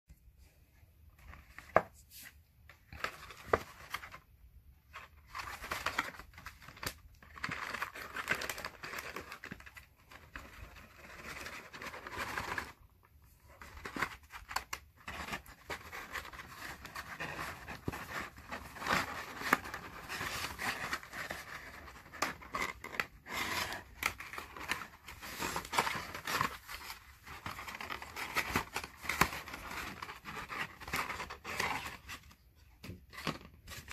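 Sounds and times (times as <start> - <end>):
card box rustling and scraping: 13.4 - 33.9.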